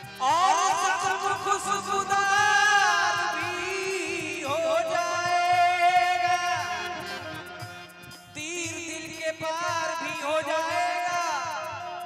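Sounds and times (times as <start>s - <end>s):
man singing into microphone: 0.0s - 12.0s.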